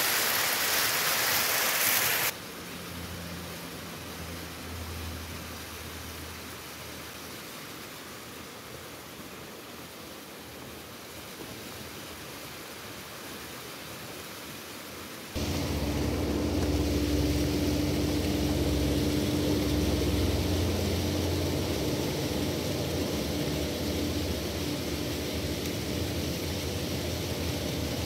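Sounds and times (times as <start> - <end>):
falling water hiss: 0.0 - 28.0
mechanical drone: 15.4 - 28.0.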